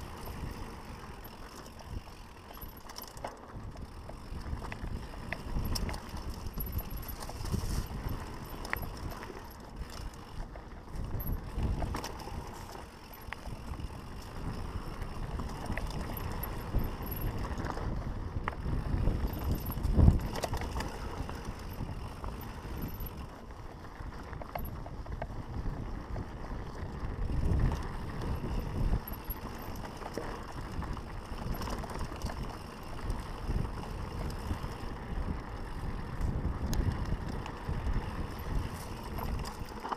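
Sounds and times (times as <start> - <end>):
bike rattling and knocking: 0.0 - 39.9
wind on microphone: 13.4 - 23.4, 24.1 - 39.7.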